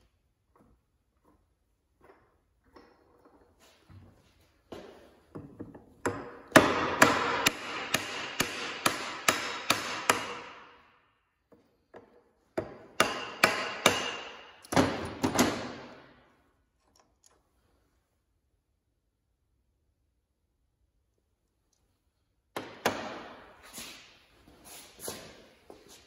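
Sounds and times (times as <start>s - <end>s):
hammer striking metal spindle: 6.1s - 10.6s.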